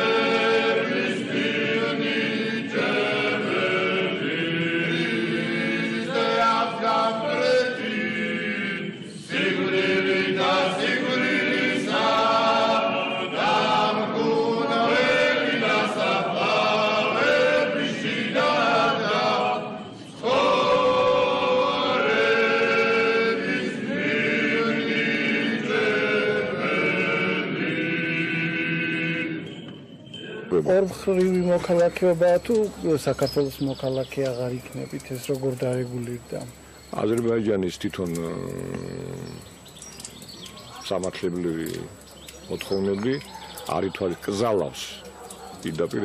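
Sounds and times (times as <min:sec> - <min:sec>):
male choir chanting a cappella: 0:00.0 - 0:36.4.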